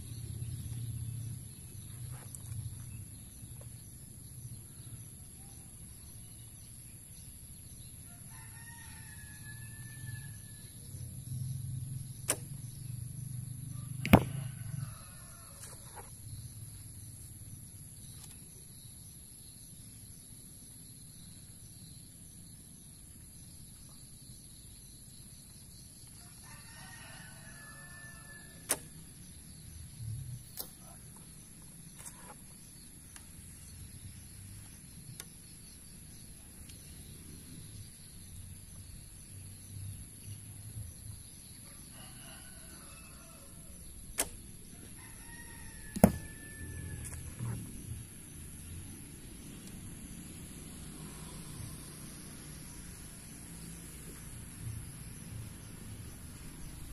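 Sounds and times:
rooster crowing: 8.3 - 10.6, 26.4 - 28.8, 41.7 - 43.8, 44.7 - 47.5
bowstring snap: 12.2 - 12.6, 28.6 - 29.0, 30.5 - 31.2, 44.1 - 44.8.

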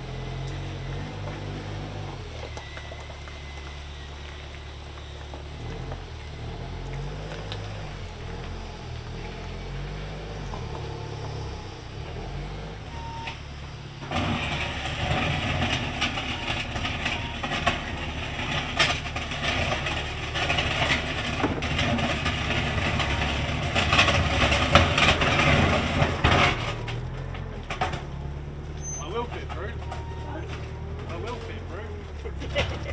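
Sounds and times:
forklift engine running: 0.0 - 32.9
knocks and clanks: 12.9 - 32.9.

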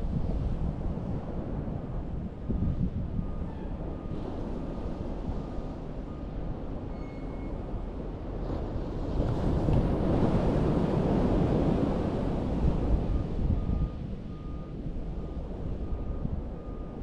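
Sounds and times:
wind buffeting microphone: 0.0 - 6.9, 7.5 - 17.0
waves washing on beach: 8.0 - 13.4.

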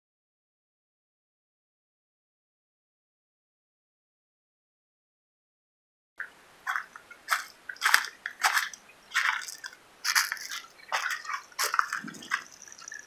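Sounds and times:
footsteps crunching through dry leaves: 6.7 - 12.7.

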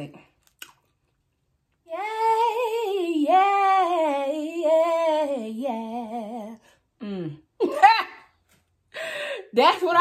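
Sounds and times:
woman singing wordless melody: 1.8 - 7.4.

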